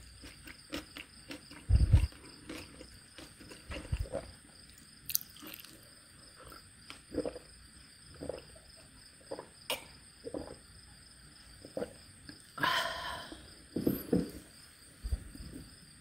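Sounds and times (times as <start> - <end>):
person chewing crunchy food: 0.0 - 10.7.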